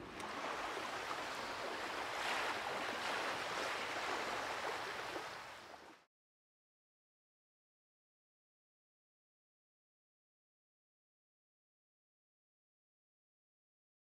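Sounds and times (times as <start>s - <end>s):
ocean waves washing: 0.0s - 6.1s.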